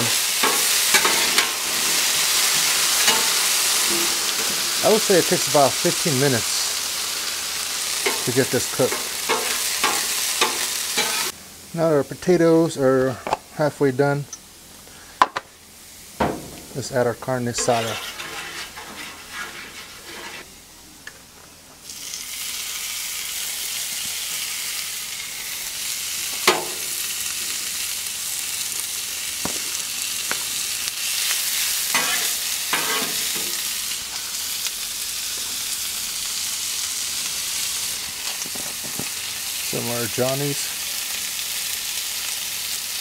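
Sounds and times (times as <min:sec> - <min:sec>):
metal spatula scraping griddle: 0:00.0 - 0:05.4, 0:08.0 - 0:11.3, 0:17.4 - 0:20.5, 0:31.9 - 0:33.7
meat sizzling on a griddle: 0:00.0 - 0:13.4, 0:14.1 - 0:16.7, 0:21.8 - 0:43.0.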